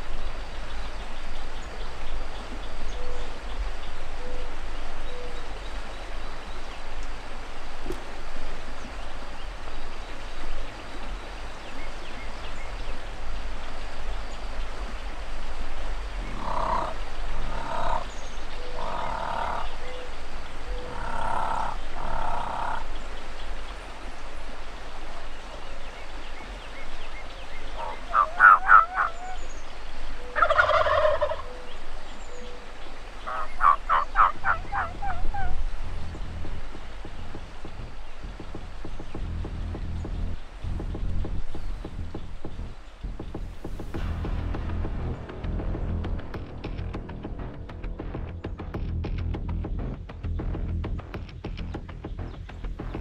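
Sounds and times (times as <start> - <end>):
turkeys gobbling: 16.1 - 23.1, 27.7 - 38.8.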